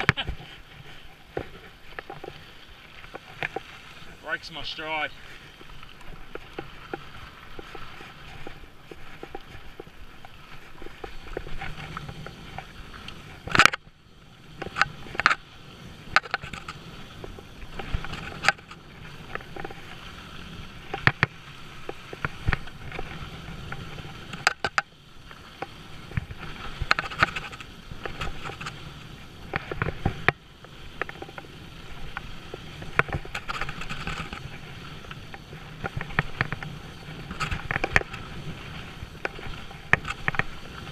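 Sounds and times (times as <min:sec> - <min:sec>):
bike knocking over rocks: 0:00.0 - 0:00.5.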